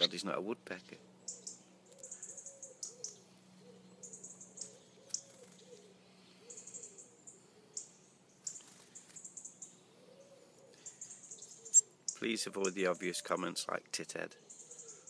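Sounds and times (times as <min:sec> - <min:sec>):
bird high-pitched calls: 0:01.2 - 0:12.2, 0:14.4 - 0:15.0.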